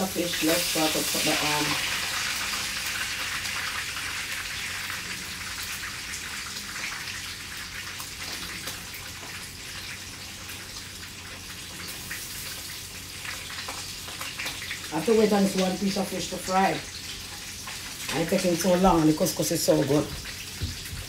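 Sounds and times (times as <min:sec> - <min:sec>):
fish frying in hot oil: 0:00.0 - 0:21.0.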